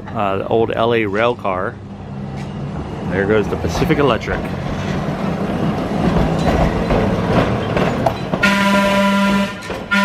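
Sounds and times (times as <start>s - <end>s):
train wheels rumbling on rail: 0.0s - 10.0s
train horn blast: 8.4s - 10.0s.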